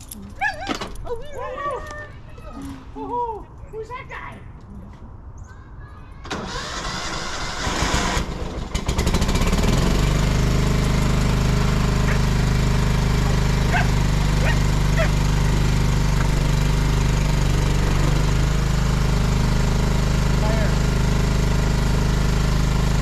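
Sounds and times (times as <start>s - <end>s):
lawn tractor engine starting: 6.3s - 23.0s.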